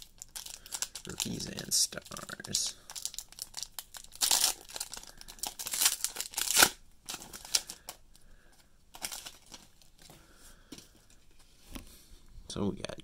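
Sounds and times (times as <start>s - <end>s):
foil wrapper tearing and crinkling: 0.0s - 8.0s, 9.0s - 9.9s
cards rustling: 0.3s - 11.4s.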